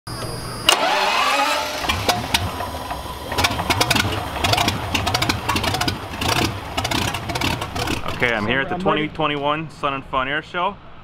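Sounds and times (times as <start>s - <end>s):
aircraft engine starting and running: 0.1s - 8.5s.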